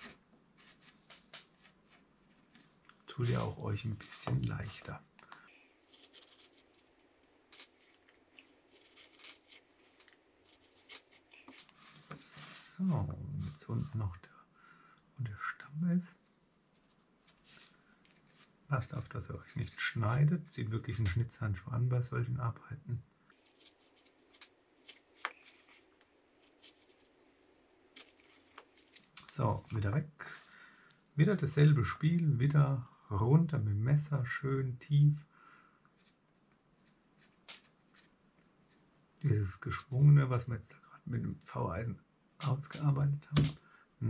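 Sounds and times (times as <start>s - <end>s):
knife scraping wood: 7.6s - 12.6s.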